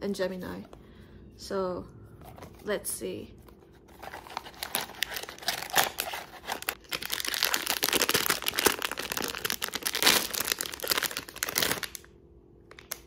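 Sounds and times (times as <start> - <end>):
foil bag crinkling and tearing: 4.0 - 12.1, 12.7 - 13.0.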